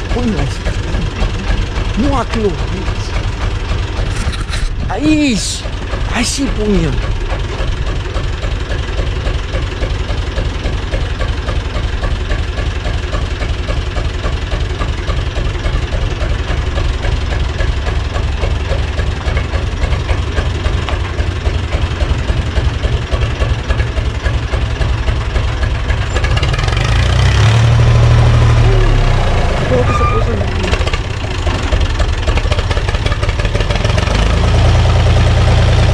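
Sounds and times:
tractor diesel engine running: 0:00.0 - 0:35.9.

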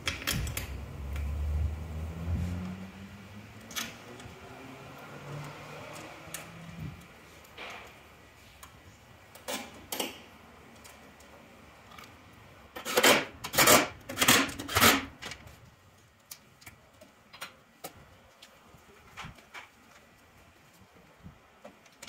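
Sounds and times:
plastic and metal parts rattling: 0:12.8 - 0:15.5.

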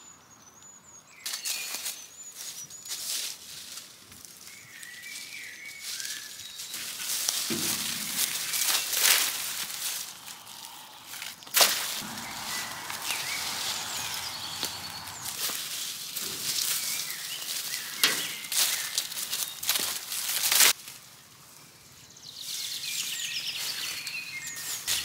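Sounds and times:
rustling and scraping: 0:05.8 - 0:21.0.

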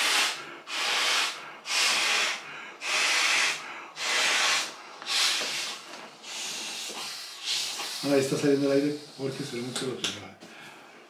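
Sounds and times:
breaths blowing up a pillow: 0:00.0 - 0:08.5.

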